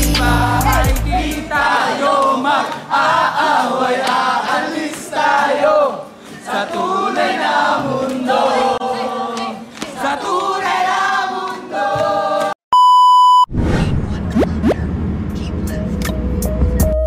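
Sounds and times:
group singing and shouting: 0.0 - 12.6.

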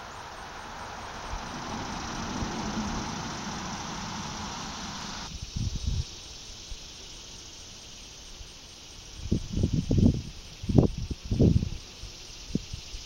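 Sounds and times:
broad rumble: 0.0 - 5.3
wind gusts on microphone: 0.0 - 6.1
insects chirring: 0.0 - 13.0.

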